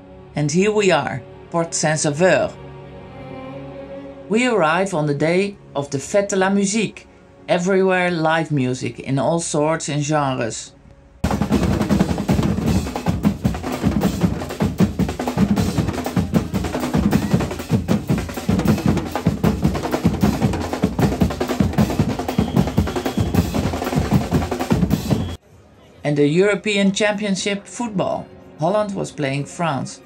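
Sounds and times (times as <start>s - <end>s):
bass drums: 11.2s - 25.4s
snare drum rolls: 11.2s - 25.4s.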